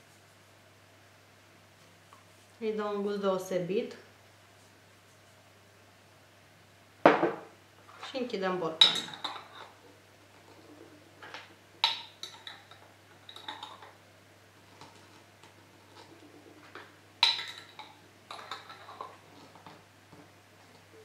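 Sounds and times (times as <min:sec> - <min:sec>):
metal lids clinking on jars: 0:17.2 - 0:19.2.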